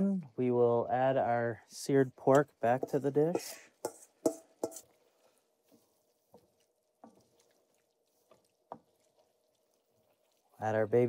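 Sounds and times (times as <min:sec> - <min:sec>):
metal spoon clinking on steel bowl: 0:02.8 - 0:04.9.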